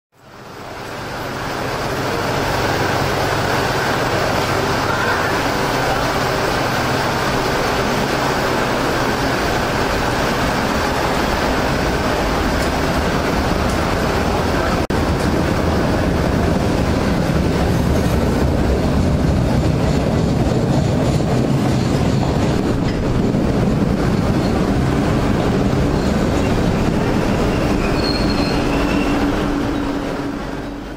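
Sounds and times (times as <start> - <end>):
steel wheels rumbling on rails: 0.2 - 30.9
high wheel squeal: 25.8 - 30.1.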